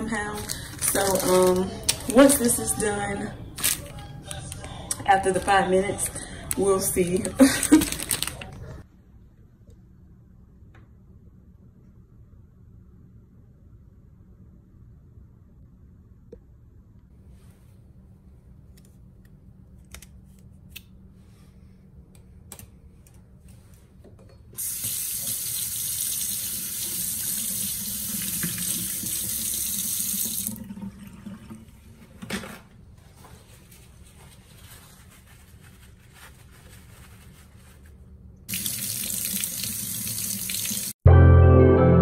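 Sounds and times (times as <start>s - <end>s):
faucet running into steel sink: 24.6s - 31.6s, 38.5s - 41.0s.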